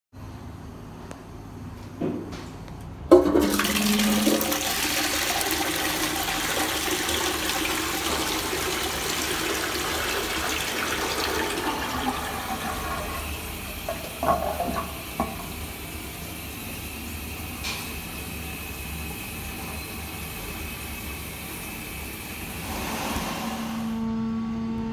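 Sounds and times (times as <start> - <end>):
toilet flush clunk: 3.1 - 15.8, 17.5 - 18.1
water rushing into toilet bowl: 3.1 - 16.1
steady water hiss: 12.4 - 23.9.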